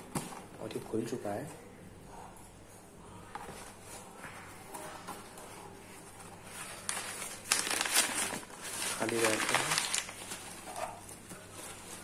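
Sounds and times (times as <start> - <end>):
packing paper crinkling: 6.2 - 12.0.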